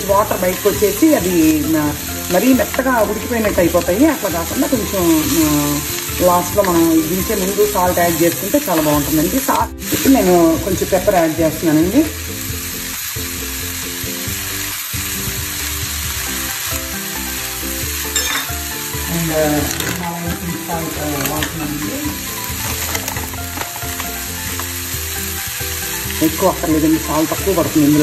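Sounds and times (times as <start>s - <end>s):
spatula stirring in a pan: 0.0s - 10.4s
vegetables sizzling in a pan: 0.0s - 28.0s.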